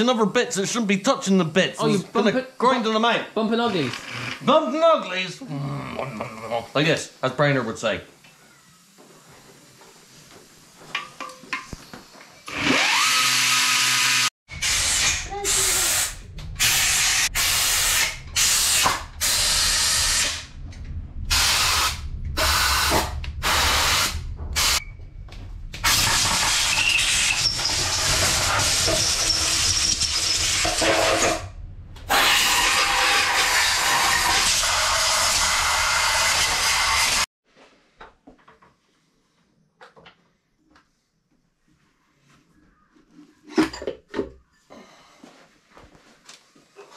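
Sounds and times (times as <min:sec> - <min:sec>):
power grinder grinding metal: 0:12.5 - 0:15.7, 0:25.9 - 0:31.4, 0:32.1 - 0:37.2.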